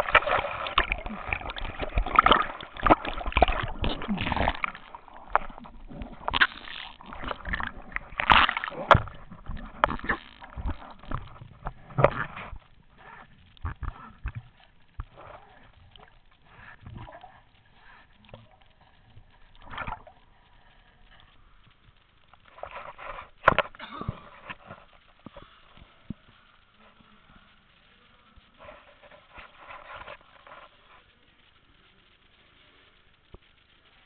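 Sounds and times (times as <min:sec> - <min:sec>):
water splashing from swimming: 0:00.0 - 0:26.2.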